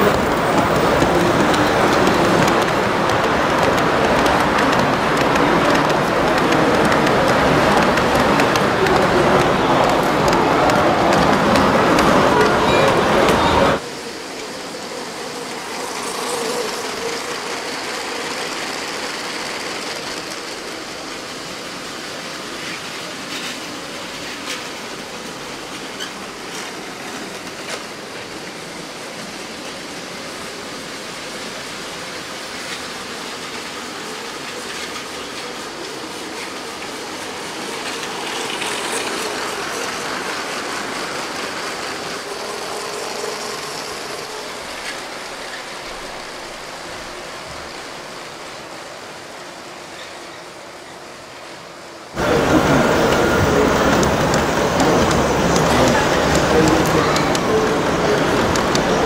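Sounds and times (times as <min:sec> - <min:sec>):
plastic wheels on plastic track: 0:00.0 - 0:13.8, 0:32.6 - 0:48.1, 0:52.2 - 0:59.0
toy train motors whining: 0:00.0 - 0:21.6, 0:33.9 - 0:48.1.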